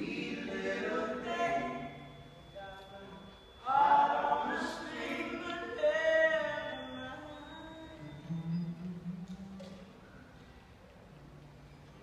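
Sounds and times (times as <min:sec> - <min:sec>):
voices singing in close harmony: 0:00.0 - 0:02.3, 0:03.6 - 0:08.5.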